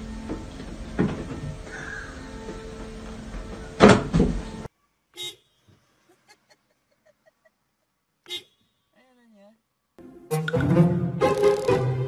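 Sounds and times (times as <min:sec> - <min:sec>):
car horn toots: 0:05.2 - 0:05.5, 0:08.2 - 0:08.8.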